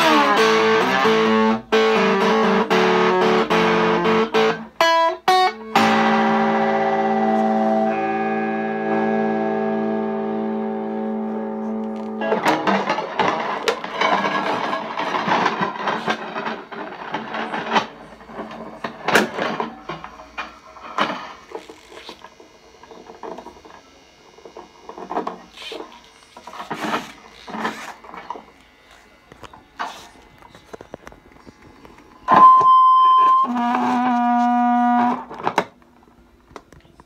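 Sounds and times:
guitar being folded clattering: 0:11.6 - 0:22.2, 0:25.0 - 0:28.5.

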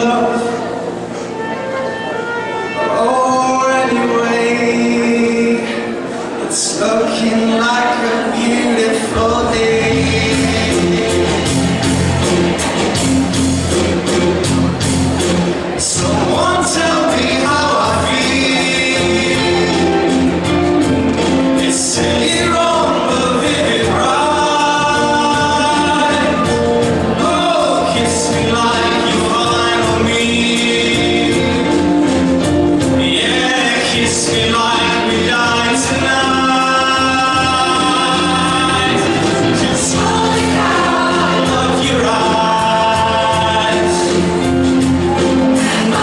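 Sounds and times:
mixed choir singing in harmony: 0:05.6 - 0:13.3, 0:15.8 - 0:20.6, 0:33.0 - 0:46.0.

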